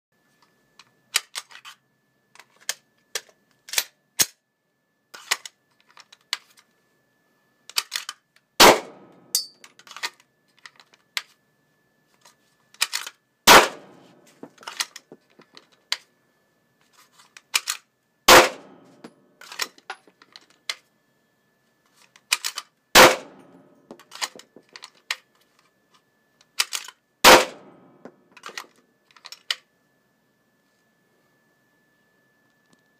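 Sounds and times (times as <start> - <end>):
pistol and holster rattling: 7.7 - 8.2, 13.9 - 16.1, 23.4 - 25.3
pistol shots with echo: 8.6 - 9.4, 13.5 - 14.0, 18.3 - 18.8, 23.0 - 23.6, 27.2 - 27.9.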